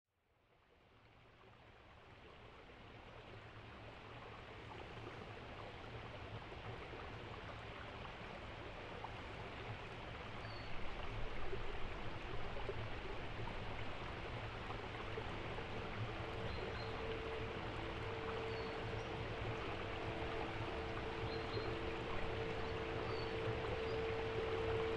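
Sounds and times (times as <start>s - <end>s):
rushing stream-like noise: 1.1s - 24.9s
low hum: 10.6s - 24.9s
steady tone: 14.7s - 24.9s.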